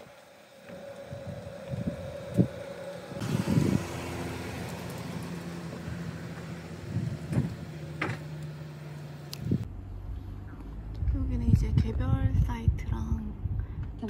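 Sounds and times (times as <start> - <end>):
car engine driving past: 0.7 - 11.1.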